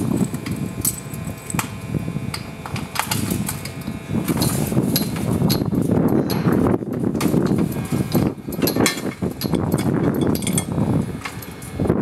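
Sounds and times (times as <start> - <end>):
low rumbling noise: 0.0 - 12.0
aluminium tube clinks and knocks: 7.2 - 11.4
metallic rings: 7.4 - 11.8.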